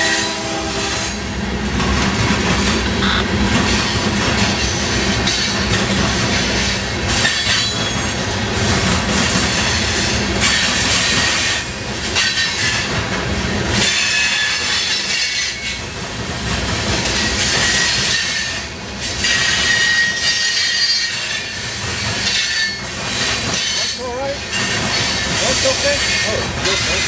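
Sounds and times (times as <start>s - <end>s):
train wheels rumbling on rail: 0.0s - 27.0s
faint high wheel squeal: 19.2s - 21.6s.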